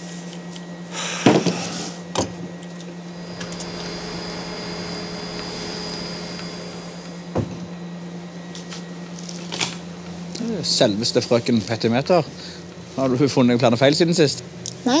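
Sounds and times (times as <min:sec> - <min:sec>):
low mechanical hum: 0:00.0 - 0:15.0
faint high whine: 0:02.5 - 0:11.4.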